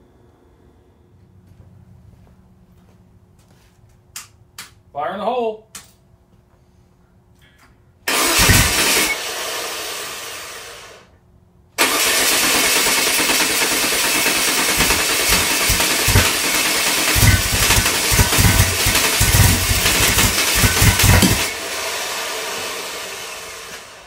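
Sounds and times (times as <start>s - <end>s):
engine running at raised revs: 8.1s - 11.0s, 12.0s - 24.0s
uneven low thuds: 17.2s - 21.5s.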